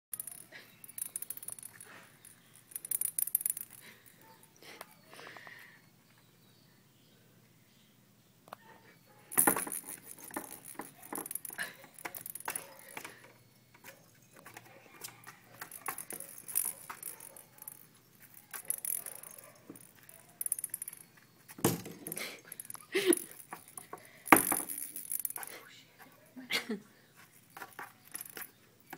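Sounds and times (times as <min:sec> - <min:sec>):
jingle bell toy rattling: 0:00.1 - 0:04.3, 0:09.3 - 0:13.4, 0:14.4 - 0:25.6, 0:27.4 - 0:28.6
kittens knocking and scuffling: 0:09.3 - 0:25.6.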